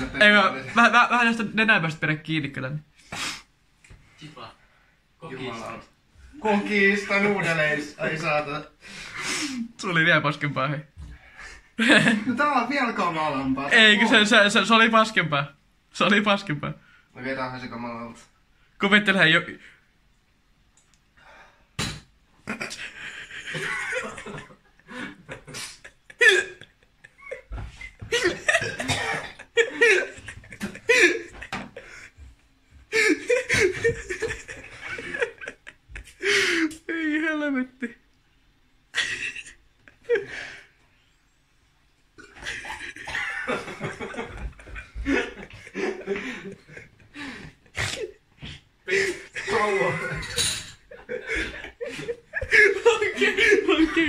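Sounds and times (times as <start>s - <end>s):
laughter: 11.8s - 12.4s, 22.4s - 32.2s, 32.9s - 37.0s, 38.9s - 40.6s, 42.2s - 48.2s, 48.9s - 54.0s
people coughing: 28.0s - 31.6s, 42.2s - 44.3s
heavy breathing: 45.1s - 49.4s.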